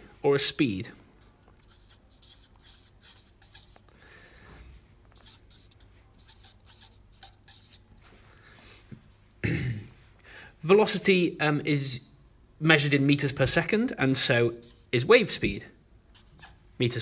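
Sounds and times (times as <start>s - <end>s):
marker scratching on paper: 0.8s - 3.9s, 5.1s - 8.1s, 14.1s - 16.6s.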